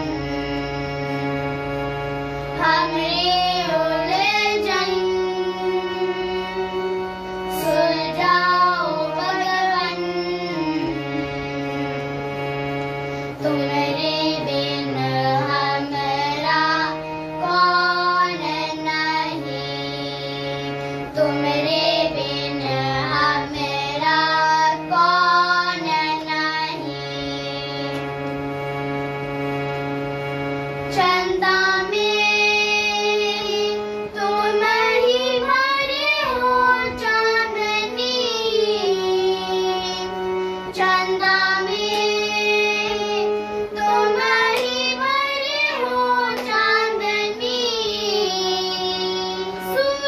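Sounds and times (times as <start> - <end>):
harmonium chords: 0.0 - 50.0
children singing: 2.4 - 12.2, 13.4 - 28.2, 30.7 - 50.0.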